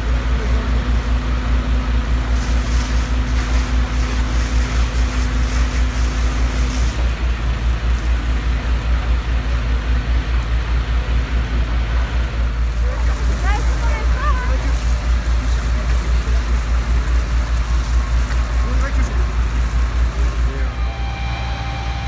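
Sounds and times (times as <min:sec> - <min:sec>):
diesel engine rumbling: 0:00.0 - 0:22.0
steady hum: 0:00.0 - 0:22.0
water spray hissing: 0:02.2 - 0:08.8, 0:12.6 - 0:20.7.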